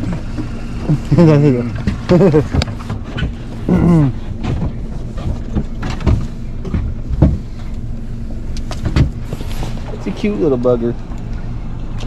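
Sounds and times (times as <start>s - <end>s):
gear knocking against hull: 0.0s - 7.7s
steady low hum: 0.0s - 12.0s
vocal exclamation: 3.6s - 4.2s.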